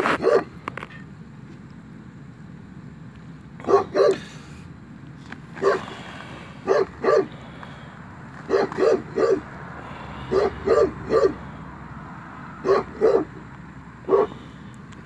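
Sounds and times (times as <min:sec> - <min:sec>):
dog barking: 0:00.1 - 0:00.5, 0:03.6 - 0:04.3, 0:05.6 - 0:05.9, 0:06.6 - 0:07.3, 0:08.4 - 0:09.5, 0:10.2 - 0:11.5, 0:12.6 - 0:13.4, 0:14.0 - 0:14.4.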